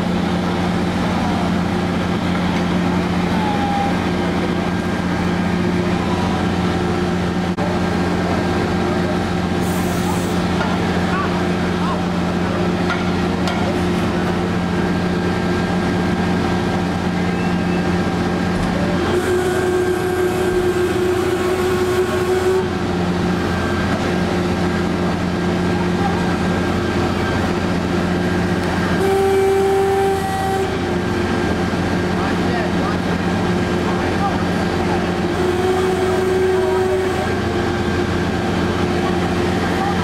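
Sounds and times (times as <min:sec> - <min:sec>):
fire engines running: 0:00.0 - 0:40.0.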